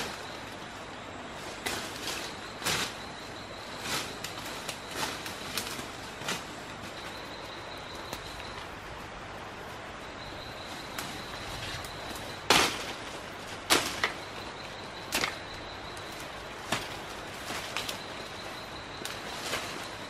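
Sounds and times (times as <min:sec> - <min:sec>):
high insect whine: 0:00.0 - 0:20.0
woody cracks of stems cut: 0:13.6 - 0:14.2.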